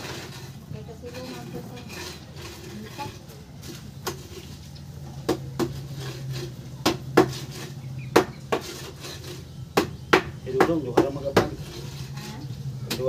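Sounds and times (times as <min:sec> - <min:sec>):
sharp metallic knocks: 0:06.8 - 0:09.0, 0:09.7 - 0:11.7.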